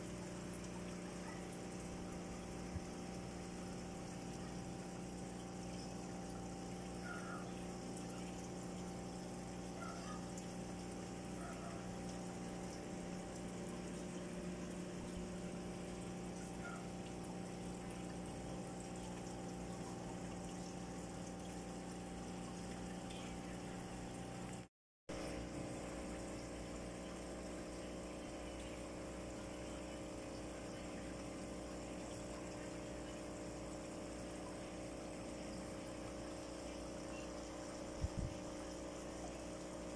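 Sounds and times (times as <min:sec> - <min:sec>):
moving water: 0:00.0 - 0:39.9
air pump hum: 0:33.4 - 0:39.9.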